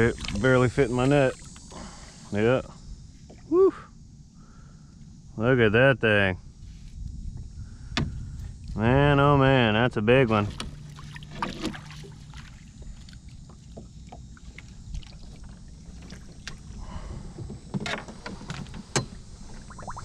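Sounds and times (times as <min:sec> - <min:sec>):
knocks and rattles against hull: 0:10.4 - 0:19.7
fish thrashing and splashing: 0:10.6 - 0:16.8.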